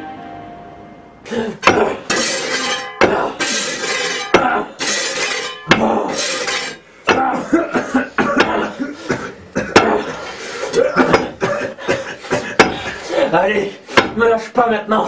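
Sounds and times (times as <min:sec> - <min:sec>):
tools scraping wall: 0:01.6 - 0:07.3
metal tools striking wall: 0:01.6 - 0:07.4, 0:08.2 - 0:08.7, 0:09.7 - 0:10.1, 0:12.3 - 0:13.0, 0:13.9 - 0:14.4.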